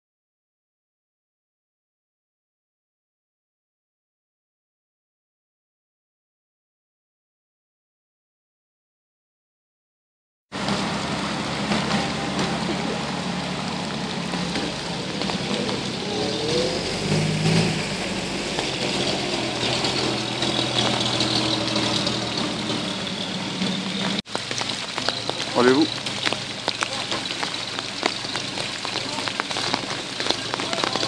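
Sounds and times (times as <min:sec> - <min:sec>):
truck engines idling: 0:10.6 - 0:31.0.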